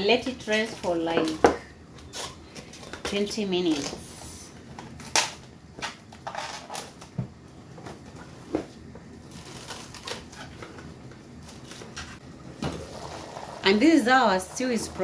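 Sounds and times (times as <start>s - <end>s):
cling film crinkling: 9.2s - 12.0s.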